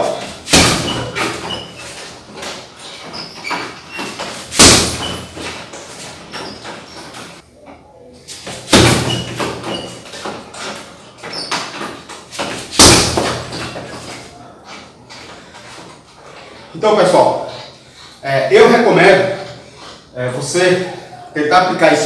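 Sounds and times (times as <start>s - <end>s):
kicks thudding on heavy bag: 0.2s - 1.7s, 4.2s - 5.6s, 8.5s - 9.7s, 12.4s - 14.0s.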